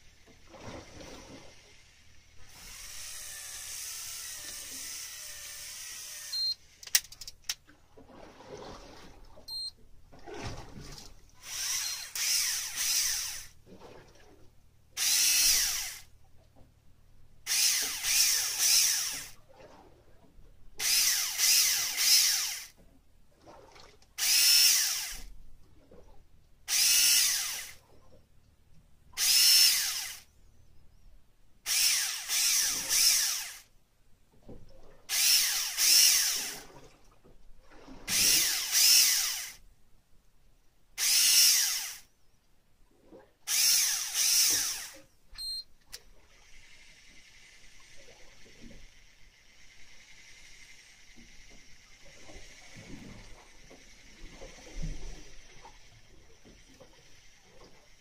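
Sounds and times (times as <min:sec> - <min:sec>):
fishing reel motor winding: 0:02.5 - 0:07.5, 0:11.4 - 0:13.6, 0:15.0 - 0:16.1, 0:17.5 - 0:19.4, 0:20.8 - 0:22.8, 0:24.2 - 0:25.3, 0:26.7 - 0:27.8, 0:29.2 - 0:30.3, 0:31.7 - 0:33.7, 0:35.1 - 0:36.7, 0:38.1 - 0:39.6, 0:41.0 - 0:42.1, 0:43.5 - 0:52.8, 0:53.5 - 0:58.0.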